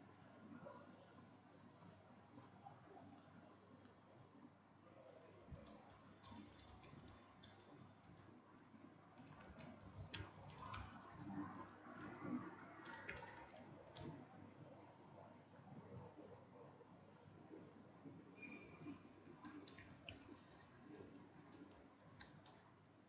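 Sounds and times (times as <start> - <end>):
computer keyboard typing: 5.3 - 8.4, 9.2 - 14.2, 19.4 - 22.6.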